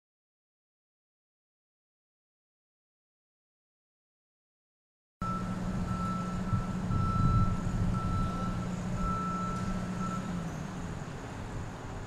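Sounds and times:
warning alarm beeps: 5.2 - 10.4
diesel engine running: 5.2 - 12.0.

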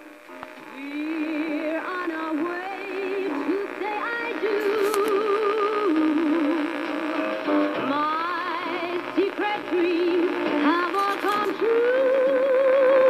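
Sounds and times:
person singing on am radio: 0.0 - 13.0.

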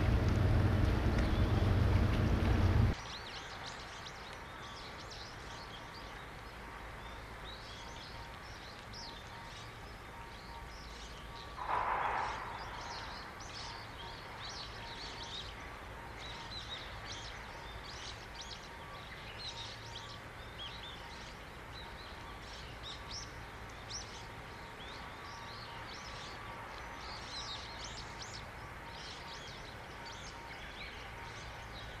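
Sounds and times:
distant hum: 0.0 - 3.0, 11.6 - 14.1
small birds chirping: 0.0 - 32.0
brief rush of noise: 11.6 - 13.3.

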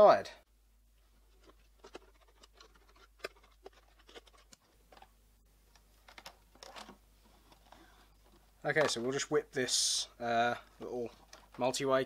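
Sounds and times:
plastic housing clicks and scrapes: 1.3 - 5.1.

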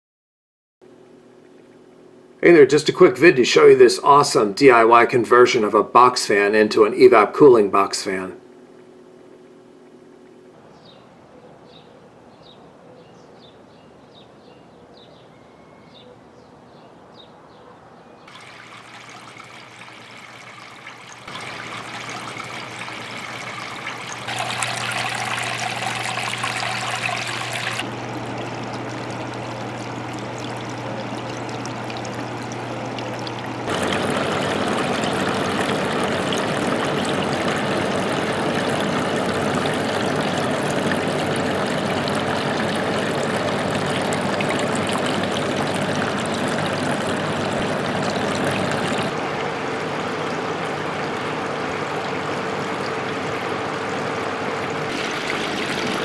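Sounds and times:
electric motor hum: 18.3 - 49.7
water trickling and dripping: 18.3 - 56.0.

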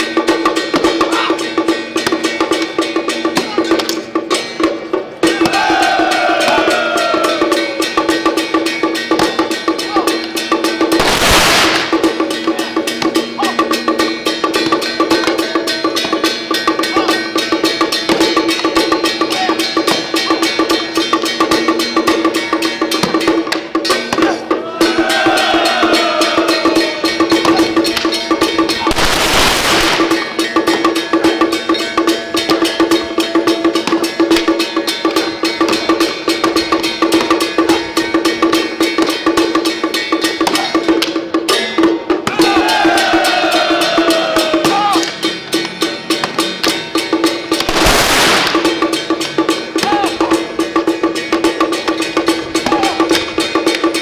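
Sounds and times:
drum gong and cymbals rhythm: 0.0 - 54.0
loud cymbal crashes: 11.0 - 12.3, 28.9 - 30.5, 47.7 - 49.2.

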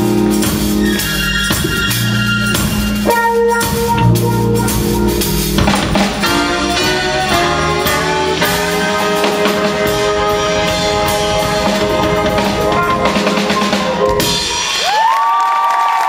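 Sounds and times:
saxophones: 0.0 - 14.8
drum-kit fills: 0.0 - 16.0
band and choir holding chord: 6.0 - 14.5.

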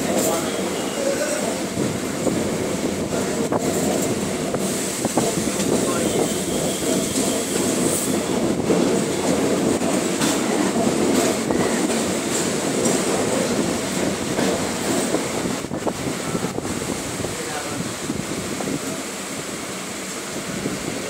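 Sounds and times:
train wheels rumbling on rails: 0.0 - 21.0.

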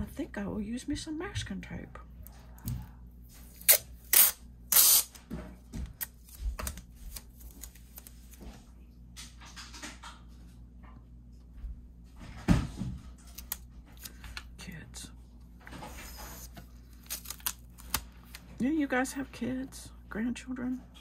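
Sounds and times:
masking tape ripping off roll: 3.5 - 5.2, 16.9 - 18.4.

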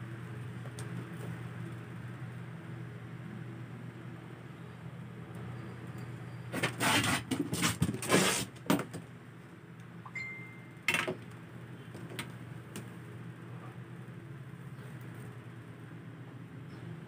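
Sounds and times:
packaging rustling and knocking: 6.6 - 8.9.

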